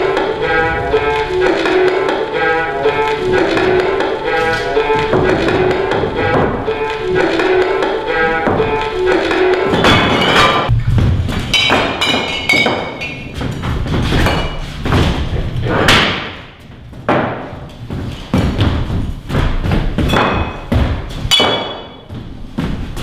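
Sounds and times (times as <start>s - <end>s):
knocks and thuds: 5.0s - 6.7s.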